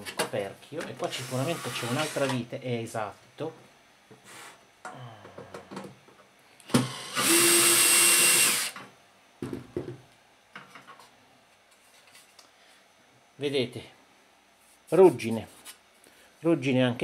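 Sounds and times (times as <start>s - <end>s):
cordless drill running: 6.7s - 8.8s.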